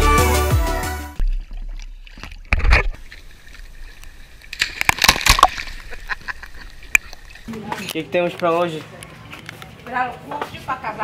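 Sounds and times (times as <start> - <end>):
river water splashing: 1.2 - 7.8.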